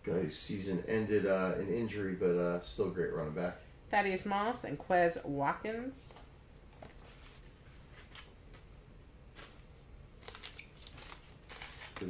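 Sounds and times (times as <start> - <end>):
trading cards rustling: 10.2 - 12.0.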